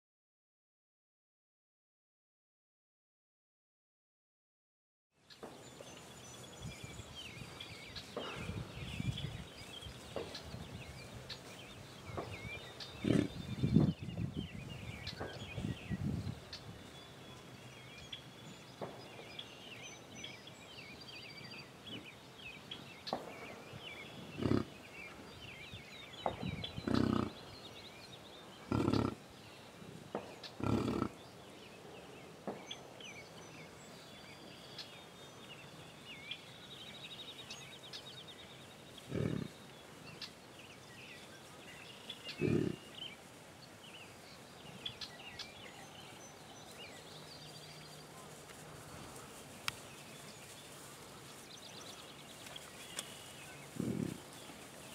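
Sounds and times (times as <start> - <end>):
songbirds chirping: 5.2 - 54.9
bison grunting: 13.0 - 13.4, 24.3 - 24.8, 26.8 - 27.4, 28.7 - 29.2, 30.6 - 31.2, 39.1 - 39.6, 42.3 - 42.9, 53.8 - 54.3.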